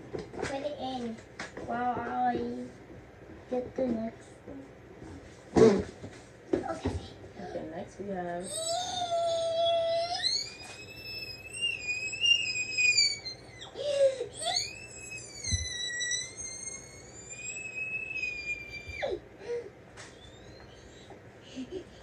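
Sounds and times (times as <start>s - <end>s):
girl squealing excitedly: 8.4s - 19.2s.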